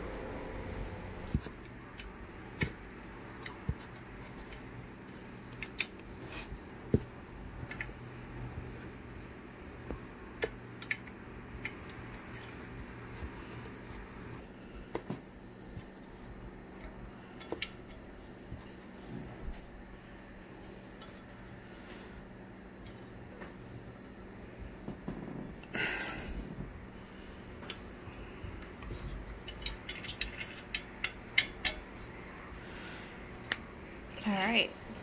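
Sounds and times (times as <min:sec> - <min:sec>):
low steady hum: 0:00.0 - 0:35.0
small metallic clicks and taps: 0:29.4 - 0:31.8.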